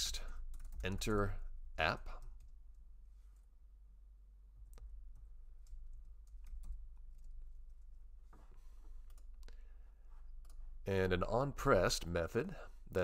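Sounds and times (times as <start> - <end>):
computer keyboard typing: 0.2 - 1.3, 4.7 - 7.9.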